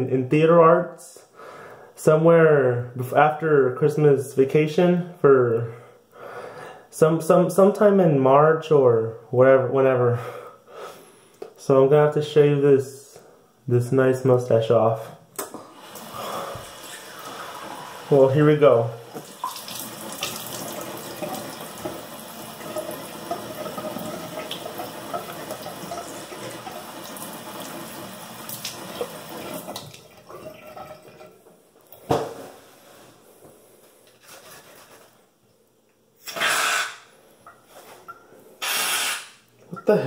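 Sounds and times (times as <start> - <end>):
bathroom tap running: 15.6 - 32.0
aerosol can hissing: 36.3 - 37.0, 38.6 - 39.4.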